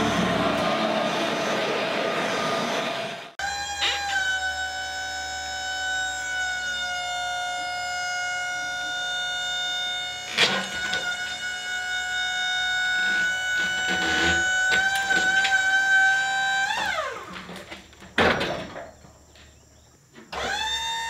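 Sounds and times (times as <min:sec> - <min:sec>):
hydraulics whining: 0:00.0 - 0:18.2.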